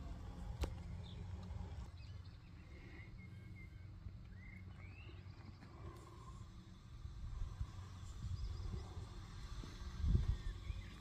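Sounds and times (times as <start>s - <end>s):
bird chirping: 1.9s - 5.6s.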